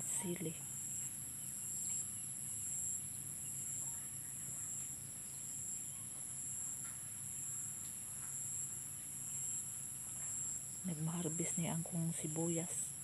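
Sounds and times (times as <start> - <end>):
faint low hum: 0.0 - 13.0
insects trilling: 0.0 - 13.0.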